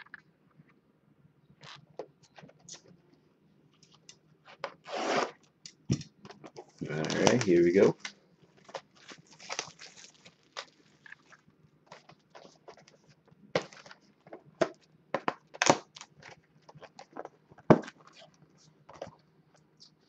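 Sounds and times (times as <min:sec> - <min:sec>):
plastic wrap crinkling: 0:06.7 - 0:19.2.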